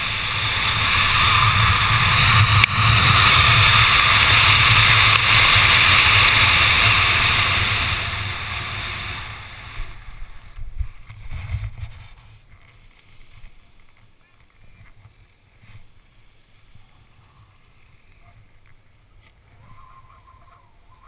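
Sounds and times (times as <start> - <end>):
wind rushing over microphone: 0.0 - 12.6.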